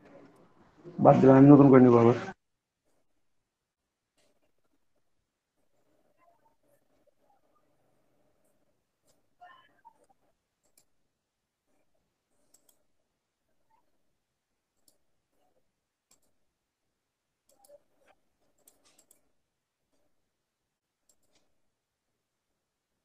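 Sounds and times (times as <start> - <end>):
faint irregular clicks: 4.1 - 11.0, 11.6 - 16.6, 17.4 - 20.2, 20.8 - 21.7.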